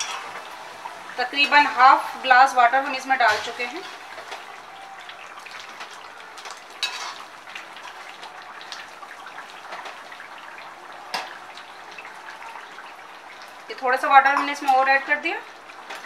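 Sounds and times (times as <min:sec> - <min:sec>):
gravy sizzling in a pan: 0:00.0 - 0:16.0
spoon clinking on a pan: 0:06.8 - 0:07.2
spoon scraping a pan: 0:06.8 - 0:07.3.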